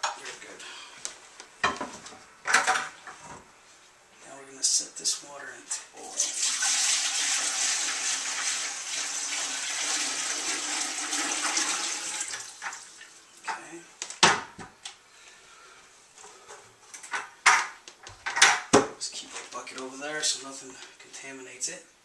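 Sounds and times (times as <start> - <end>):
water pouring into metal pot: 6.1 - 13.1.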